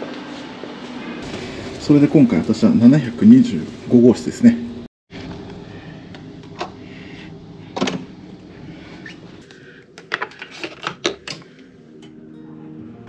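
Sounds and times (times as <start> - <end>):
steady low hum: 0.3 - 10.5.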